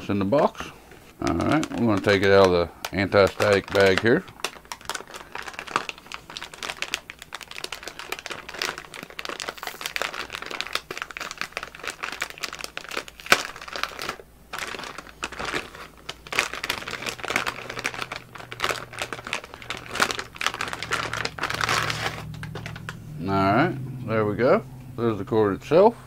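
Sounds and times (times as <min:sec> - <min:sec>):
plastic bag crinkling: 0:00.4 - 0:23.2.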